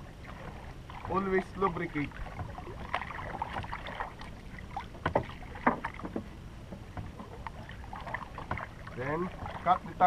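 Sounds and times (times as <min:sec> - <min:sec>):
water lapping against a hull: 0:00.0 - 0:10.0.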